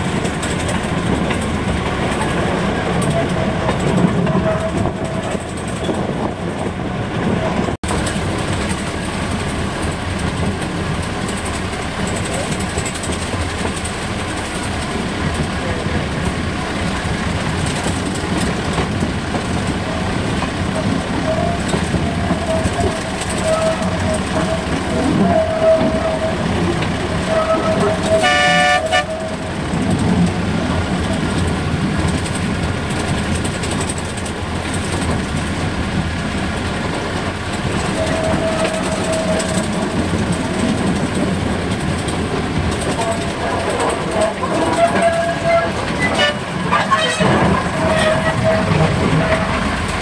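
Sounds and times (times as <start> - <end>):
train running on track: 0.0 - 50.0
train horn toot: 27.2 - 29.5, 44.7 - 49.6.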